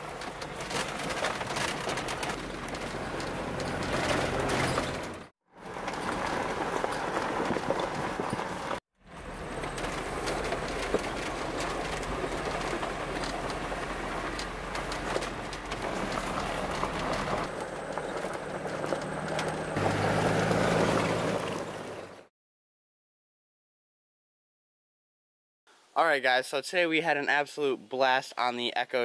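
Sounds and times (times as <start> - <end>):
tyre noise: 0.0 - 22.1
vehicle engine running: 0.0 - 22.3
vehicle rattling over bumps: 0.0 - 22.3.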